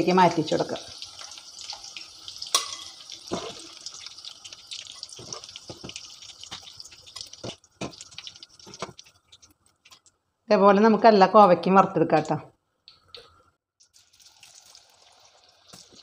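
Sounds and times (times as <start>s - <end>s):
hot oil sizzling: 0.0s - 10.0s, 13.8s - 16.0s
metal ladle clinking and scraping: 2.5s - 3.7s.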